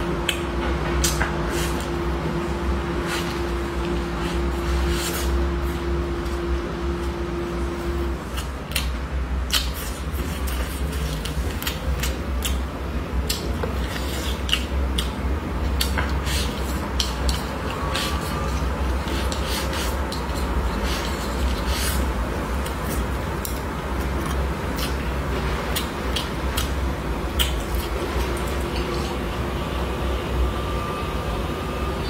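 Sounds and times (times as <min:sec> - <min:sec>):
person chewing and slurping: 0:08.1 - 0:29.4
chopsticks scraping bowl: 0:16.1 - 0:23.0
wet mouth clicks: 0:25.7 - 0:29.2.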